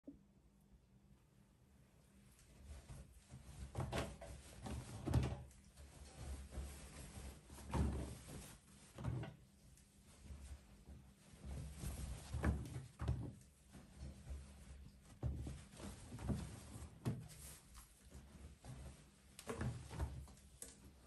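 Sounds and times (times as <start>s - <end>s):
cloth rustling: 2.4s - 21.0s
soft thuds of cloth: 2.6s - 21.0s.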